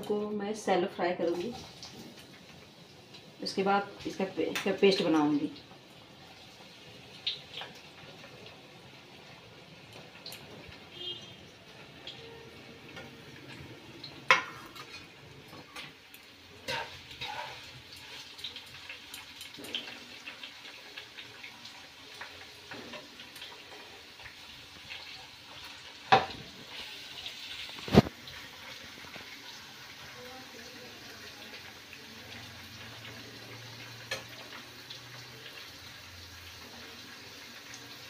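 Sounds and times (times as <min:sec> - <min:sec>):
onion and tomato sizzling in pan: 0:00.0 - 0:38.0
metal utensils scraping pan: 0:16.6 - 0:18.2.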